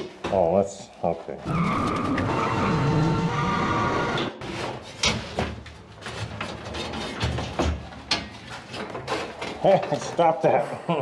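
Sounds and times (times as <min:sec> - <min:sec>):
lift motor whining: 0:01.5 - 0:04.4
knocks and clatter of handling: 0:04.4 - 0:10.5.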